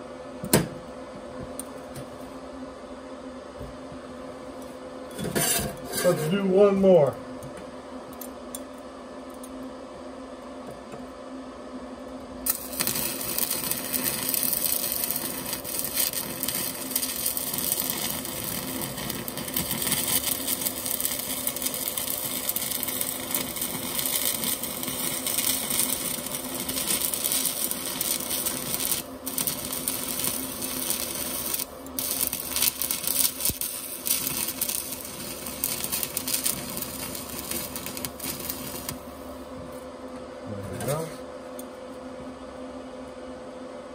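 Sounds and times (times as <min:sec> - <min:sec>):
steady low hum: 0:00.0 - 0:43.9
welding arc crackling: 0:12.4 - 0:39.2.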